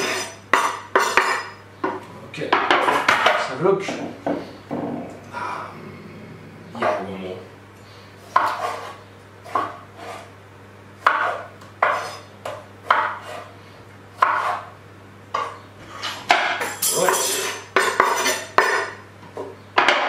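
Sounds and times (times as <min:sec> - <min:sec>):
knife scraping board: 0:00.0 - 0:01.4, 0:08.2 - 0:10.3, 0:11.0 - 0:13.6, 0:14.2 - 0:14.8, 0:15.4 - 0:19.0
knife chopping on wooden board: 0:08.3 - 0:10.3, 0:11.0 - 0:13.5, 0:14.2 - 0:14.7.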